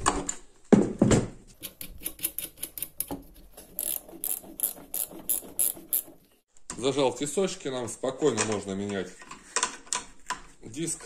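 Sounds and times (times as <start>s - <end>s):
ratchet wrench clicking: 3.8s - 6.1s.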